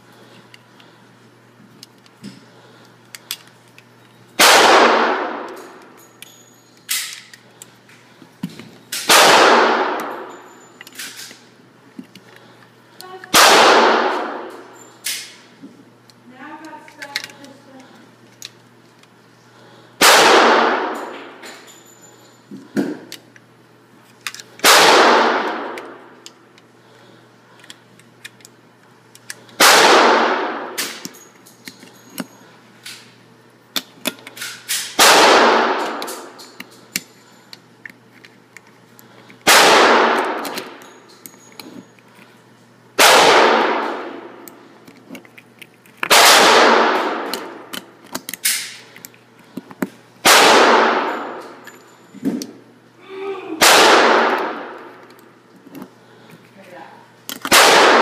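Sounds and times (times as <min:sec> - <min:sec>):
gunshots echoing indoors: 0:04.4 - 0:05.9, 0:09.0 - 0:10.4, 0:13.3 - 0:15.4, 0:20.0 - 0:21.4, 0:24.6 - 0:26.2, 0:29.6 - 0:31.0, 0:34.8 - 0:36.4, 0:39.4 - 0:40.8, 0:43.0 - 0:44.4, 0:46.1 - 0:47.7, 0:50.2 - 0:51.6, 0:53.6 - 0:55.0, 0:57.4 - 0:58.0.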